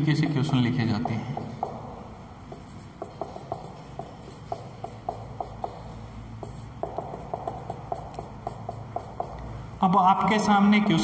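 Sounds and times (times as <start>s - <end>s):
marker squeaking on whiteboard: 0.4s - 9.5s.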